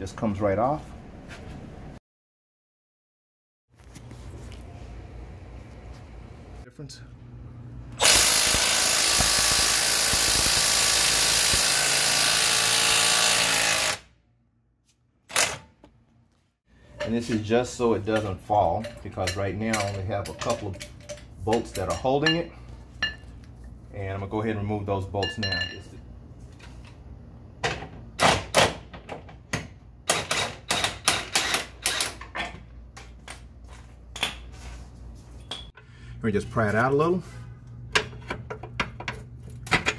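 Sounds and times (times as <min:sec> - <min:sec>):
power ratchet whirring: 0:08.0 - 0:14.1.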